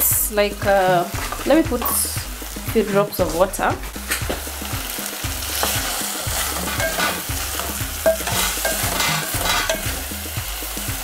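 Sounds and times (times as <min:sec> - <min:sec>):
tripe and peppers sizzling in a pot: 0:00.0 - 0:11.0
scraping and knocking in a pot: 0:05.5 - 0:10.1.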